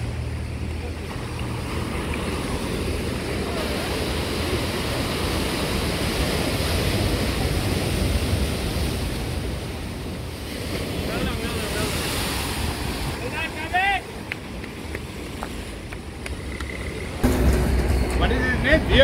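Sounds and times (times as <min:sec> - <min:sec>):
surf breaking on rocks: 0:01.1 - 0:16.2.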